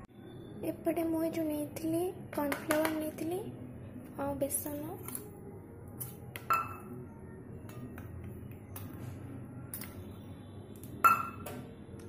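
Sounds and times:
spoon clinking on ceramic bowl: 0:06.4 - 0:06.9, 0:11.0 - 0:11.5.

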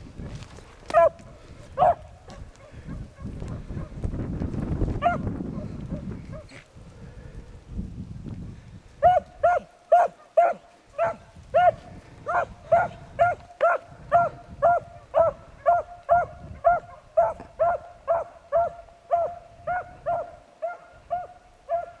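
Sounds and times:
brush rustling: 0:00.0 - 0:04.8
beagle baying: 0:00.9 - 0:01.2, 0:01.8 - 0:04.0, 0:09.0 - 0:22.0.

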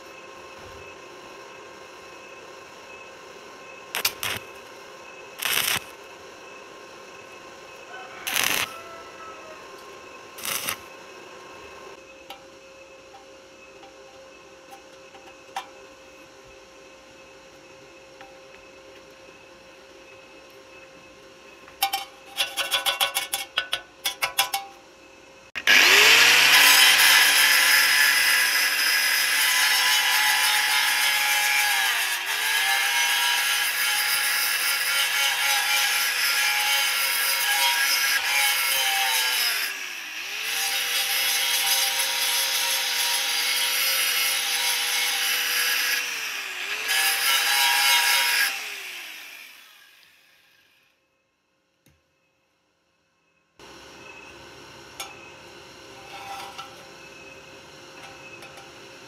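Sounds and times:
angle grinder grinding steel: 0:04.0 - 0:04.6, 0:05.4 - 0:06.0, 0:07.8 - 0:11.0, 0:25.6 - 0:50.2, 0:55.0 - 0:59.0.

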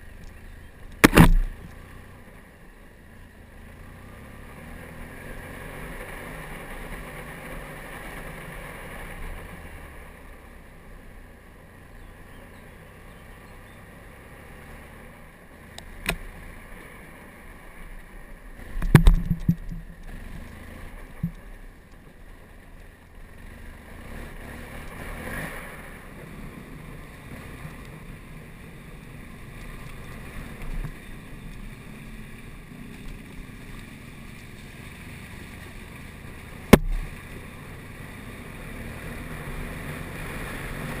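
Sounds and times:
motorcycle engine running: 0:00.0 - 0:41.0
sharp knock: 0:01.0 - 0:01.6, 0:36.7 - 0:37.0.

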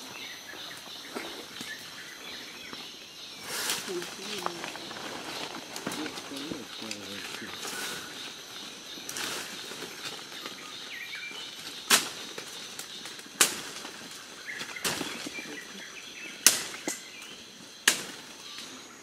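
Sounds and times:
machete chopping undergrowth: 0:11.8 - 0:14.0, 0:14.6 - 0:15.4, 0:16.4 - 0:18.4.

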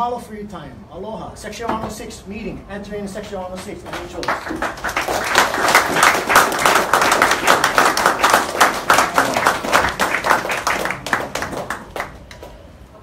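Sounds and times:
audience clapping: 0:03.6 - 0:12.8.

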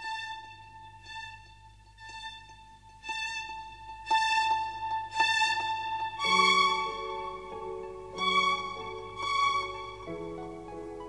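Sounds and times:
slow instrumental music: 0:00.0 - 0:11.0.

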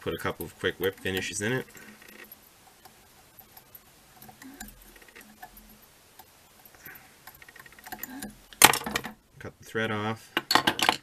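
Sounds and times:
light ticks and clicks of metal tool: 0:00.4 - 0:08.6.

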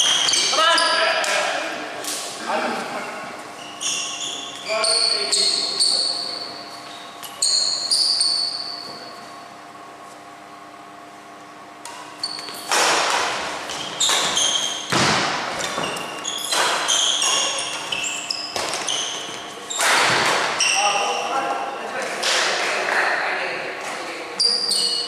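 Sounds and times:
shoe squeaks on floor: 0:00.0 - 0:01.1, 0:02.9 - 0:09.4, 0:12.1 - 0:12.8, 0:13.7 - 0:21.2, 0:24.4 - 0:25.0
racket striking shuttlecock: 0:11.9 - 0:15.5.

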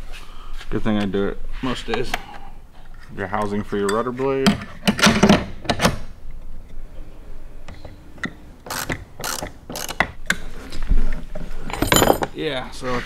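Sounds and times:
ratchet wrench clicking: 0:08.7 - 0:10.0
metal hardware clicks and knocks: 0:11.7 - 0:12.4.

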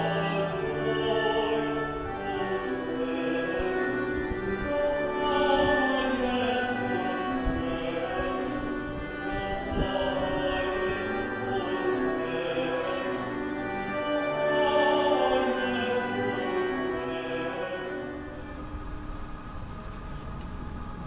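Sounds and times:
voices singing long notes: 0:00.0 - 0:18.7.

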